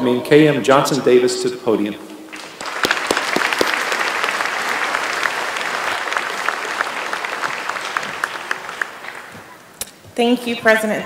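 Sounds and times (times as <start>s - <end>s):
audience applauding: 2.3s - 9.8s.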